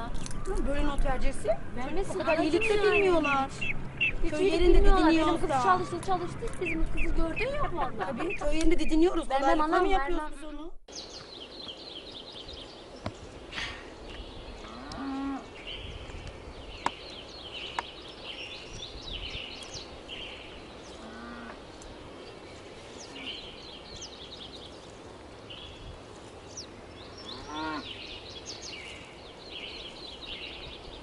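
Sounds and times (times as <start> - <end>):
high chirping: 2.2 - 4.3
cattle mooing: 21.0 - 21.6.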